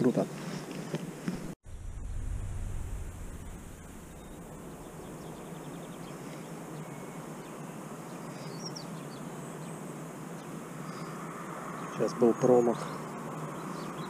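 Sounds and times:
outdoor background noise: 0.0s - 14.0s
faint bird chirps: 3.4s - 14.0s.

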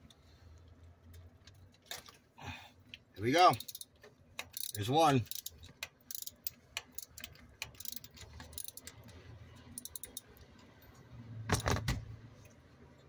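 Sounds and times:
metal tools tapping: 3.5s - 9.0s, 9.6s - 10.4s
socket ratchet clicking: 3.5s - 9.0s, 9.7s - 10.4s.

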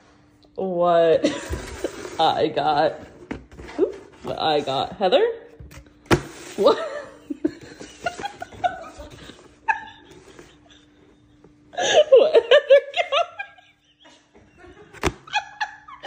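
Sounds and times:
person laughing: 6.5s - 16.0s.

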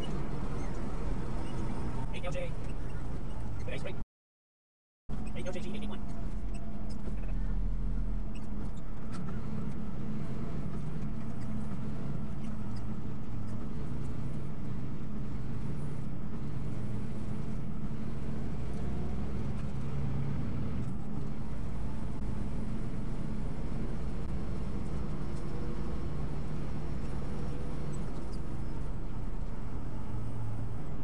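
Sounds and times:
vehicle engine and road noise: 0.0s - 4.0s, 5.1s - 31.0s.

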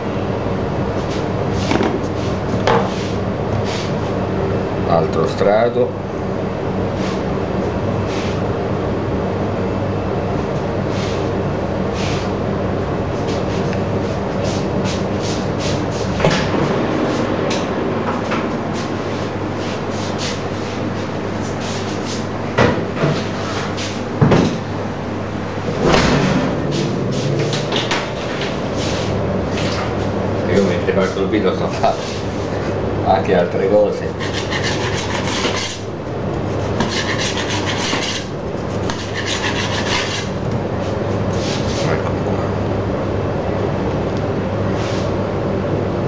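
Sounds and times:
steady machine hum: 0.0s - 46.0s
knife sawing through cake: 34.0s - 40.4s.

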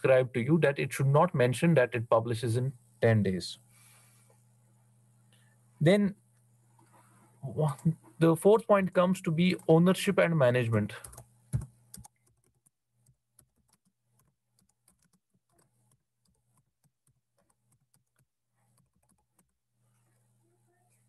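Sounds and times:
keyboard typing: 10.9s - 19.6s.

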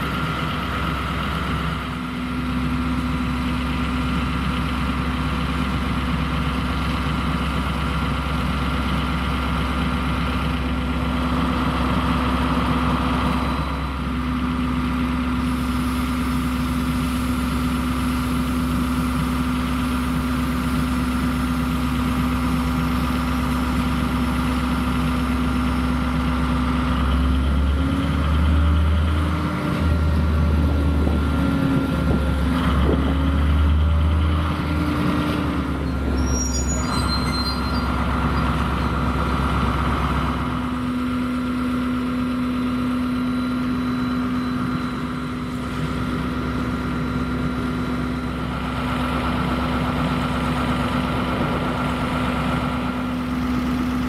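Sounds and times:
diesel locomotive engine idling: 0.0s - 54.0s
high-pitched squeaks: 35.8s - 38.5s.

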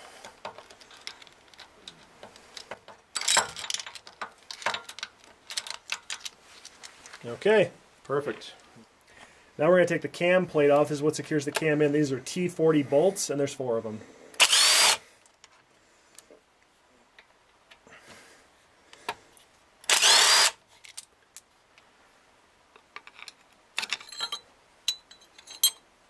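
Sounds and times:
metallic clicks of bolts and tools: 0.3s - 6.4s, 23.0s - 25.9s
small power tool spinning: 14.4s - 15.0s, 19.9s - 20.6s.

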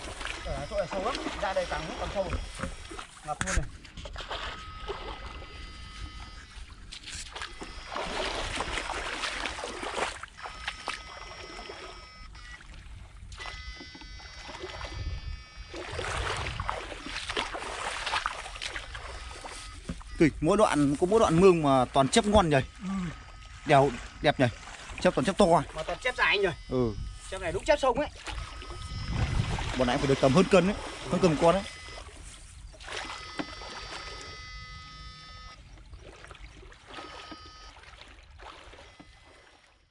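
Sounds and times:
wading in muddy water: 0.0s - 39.9s
thin high whine: 18.9s - 35.6s
low wind rumble: 28.7s - 29.8s.

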